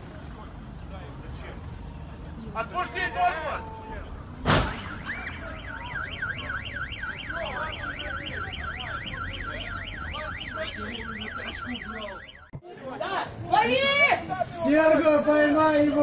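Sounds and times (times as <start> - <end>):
loud thump: 4.4 - 5.0
car alarm wailing: 4.8 - 12.6.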